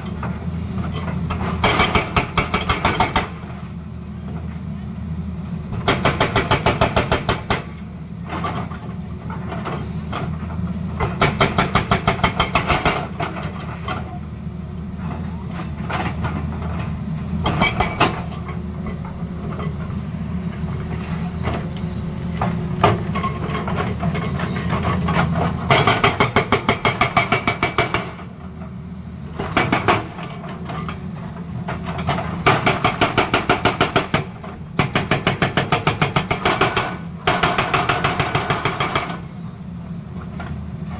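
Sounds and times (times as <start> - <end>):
hydraulic rock breaker hammering: 0.0 - 3.6, 5.7 - 8.8, 11.0 - 14.2, 15.5 - 19.9, 21.0 - 28.3, 29.3 - 39.3.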